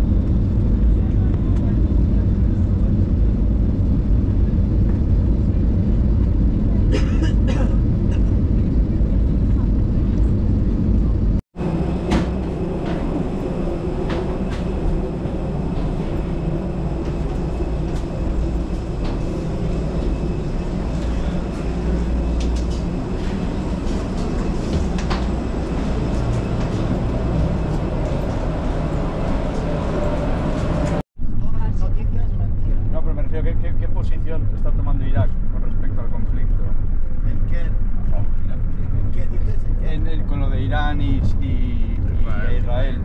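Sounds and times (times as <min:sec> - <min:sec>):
low rumble of airport machinery: 0:00.0 - 0:43.0
passengers' footsteps: 0:09.2 - 0:31.0.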